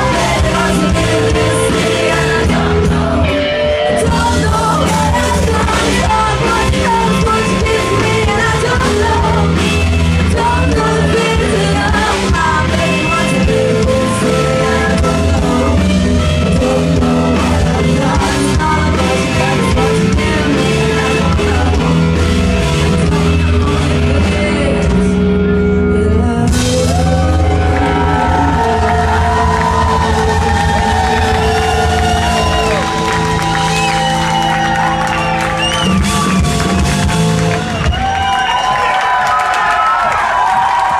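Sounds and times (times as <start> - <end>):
woman singing: 0.0 - 31.2
rock band playing: 0.0 - 40.9.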